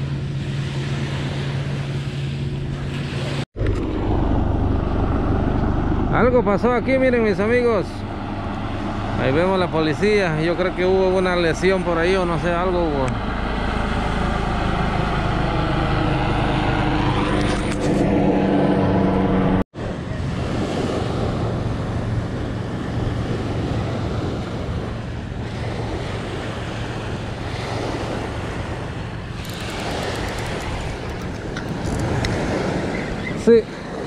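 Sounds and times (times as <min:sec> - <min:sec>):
low-flying aircraft engine: 0:00.0 - 0:34.0
wind buffeting microphone: 0:00.0 - 0:34.0
small waves washing onto sand: 0:19.8 - 0:34.0.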